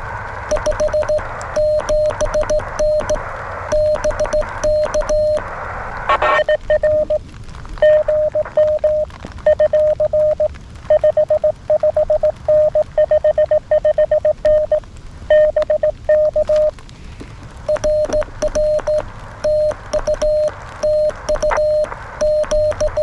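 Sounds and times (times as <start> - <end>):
keying clicks: 0.5 - 5.4, 17.7 - 23.0
morse code tone: 0.5 - 5.4, 6.1 - 7.2, 7.8 - 16.7, 17.7 - 23.0.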